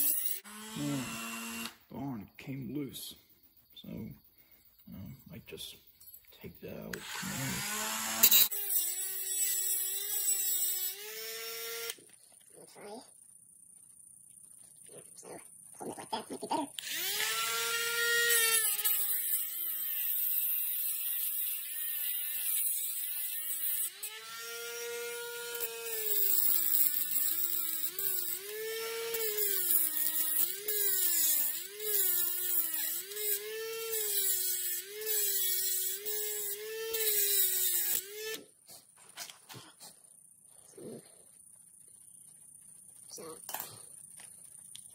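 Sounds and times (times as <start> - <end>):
rotary tool cutting metal: 0.0 - 1.9, 6.9 - 12.1, 16.8 - 38.5.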